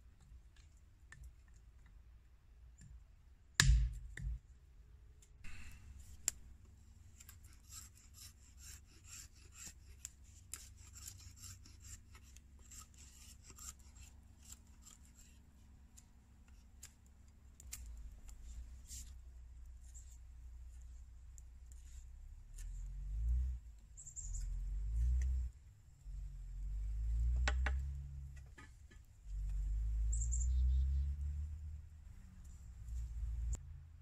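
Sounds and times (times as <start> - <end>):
knife scraping wood: 7.1 - 17.0.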